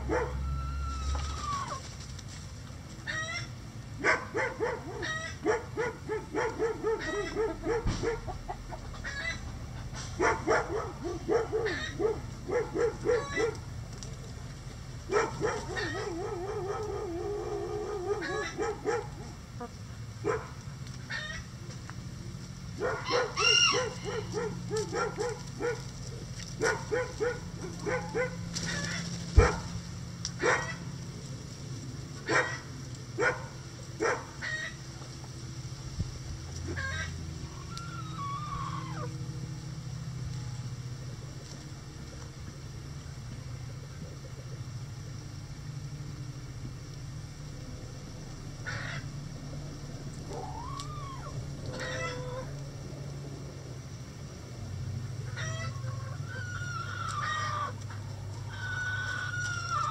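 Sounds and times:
chicken squawk: 0:00.0 - 0:01.9, 0:03.0 - 0:13.6, 0:15.1 - 0:19.8, 0:21.1 - 0:21.5, 0:22.8 - 0:29.7, 0:34.0 - 0:34.8, 0:36.6 - 0:39.2, 0:48.6 - 0:49.2, 0:50.2 - 0:52.6, 0:55.2 - 0:59.9
chickens clucking: 0:00.0 - 0:35.4, 0:36.4 - 0:45.8, 0:48.2 - 0:53.4, 0:54.6 - 0:59.9.

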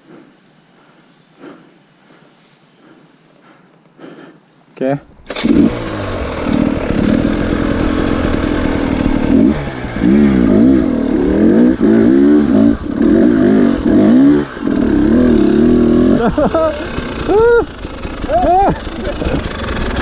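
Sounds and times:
dirt bike engine revving: 0:05.1 - 0:20.0.

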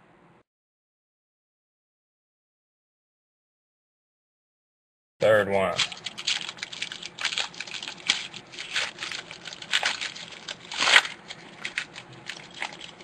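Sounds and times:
foil wrapper tearing and crinkling: 0:05.8 - 0:13.0.

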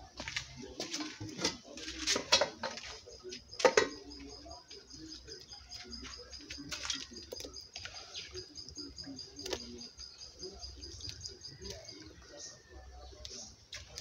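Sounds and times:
clicks and taps in plastic bowl: 0:02.1 - 0:04.9
dried fish dropping into pot: 0:03.6 - 0:04.2.

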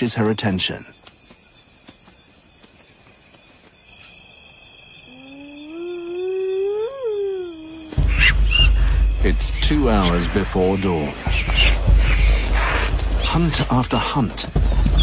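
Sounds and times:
hyena whooping: 0:05.1 - 0:08.6.

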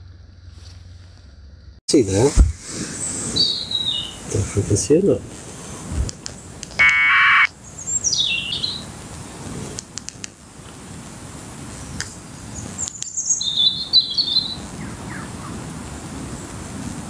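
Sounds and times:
birds calling: 0:02.7 - 0:09.0, 0:12.4 - 0:16.7
buzzing radio data packet: 0:06.8 - 0:07.5.

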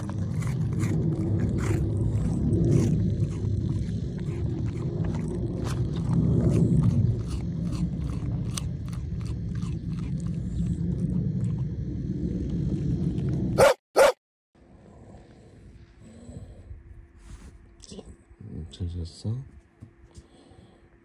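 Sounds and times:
dog chewing and crunching: 0:00.0 - 0:11.8
low rumble: 0:00.0 - 0:13.6, 0:14.6 - 0:18.4.

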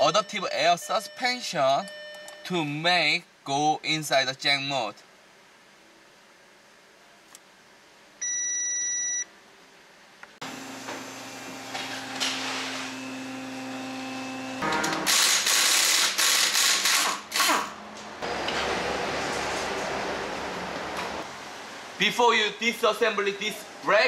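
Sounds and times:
pneumatic impact wrench: 0:14.8 - 0:17.8.

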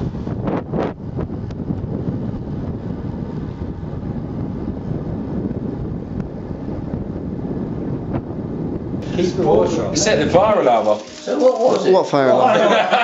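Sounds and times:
wind rushing over microphone: 0:00.0 - 0:11.0.

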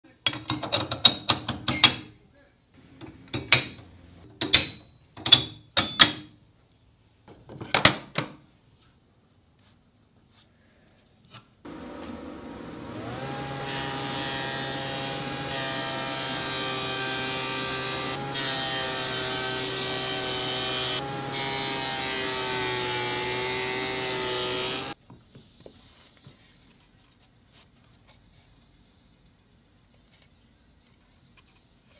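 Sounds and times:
saw blade cutting plywood: 0:11.7 - 0:25.0
table saw motor humming: 0:11.7 - 0:25.0.

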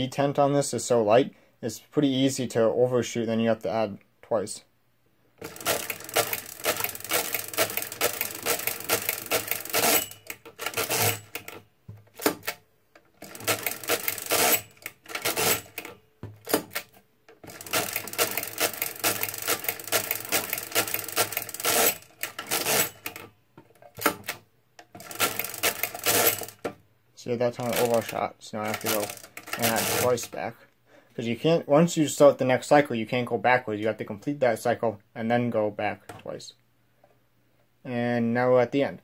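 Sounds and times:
mechanical calculator gears clattering: 0:05.4 - 0:26.7, 0:27.5 - 0:30.3
calculator carriage shifting: 0:05.4 - 0:26.8, 0:27.6 - 0:30.3.

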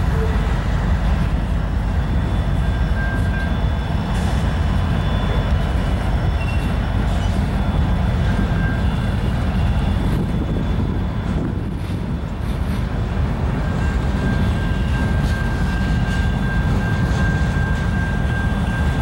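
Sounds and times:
train wheels rumbling on rails: 0:00.0 - 0:19.0
faint high squeals: 0:01.6 - 0:12.3.

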